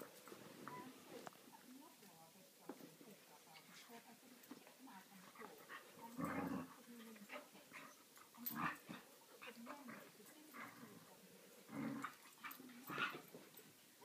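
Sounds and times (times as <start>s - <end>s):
dogs play-fighting vocalizing: 5.4s - 11.0s, 11.6s - 13.4s.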